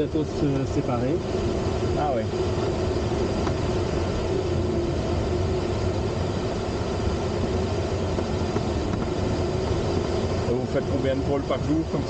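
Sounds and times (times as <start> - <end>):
airflow rushing around cockpit: 0.0 - 12.0.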